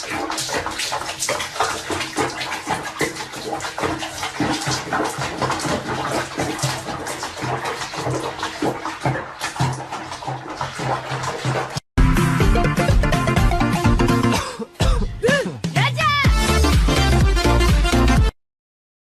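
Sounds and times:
bathwater splashing: 0:00.0 - 0:15.4.

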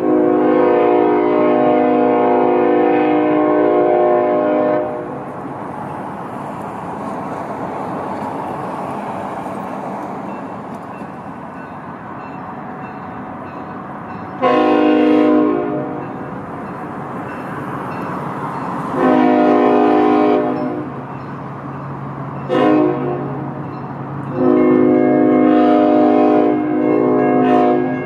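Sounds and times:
locomotive air horn: 0:00.0 - 0:05.2, 0:14.4 - 0:16.2, 0:18.9 - 0:21.0, 0:22.5 - 0:23.6, 0:24.3 - 0:28.0
train rolling past: 0:00.0 - 0:28.0.

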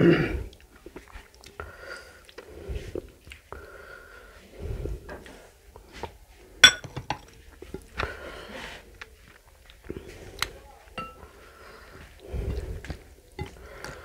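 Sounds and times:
glass bowl clinking on saucer: 0:06.6 - 0:07.2, 0:11.0 - 0:11.2
fingers mixing rice: 0:07.2 - 0:14.0.

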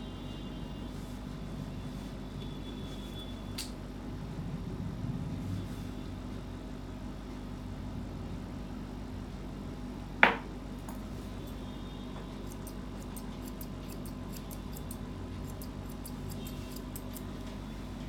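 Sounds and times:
scissors snipping fur: 0:12.4 - 0:17.5.

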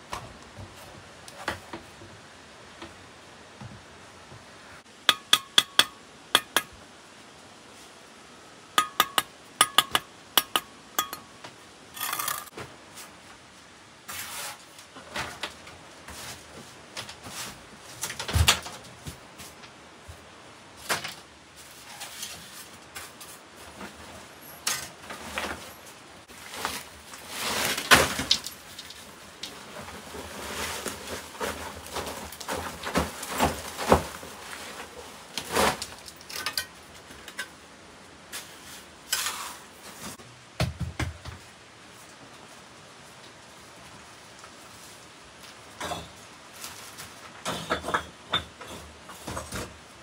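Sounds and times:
knocks and rustles: 0:00.0 - 0:03.0, 0:14.1 - 0:37.6, 0:38.4 - 0:41.6, 0:45.5 - 0:49.9
ringing clinks of hard objects: 0:08.8 - 0:11.3.

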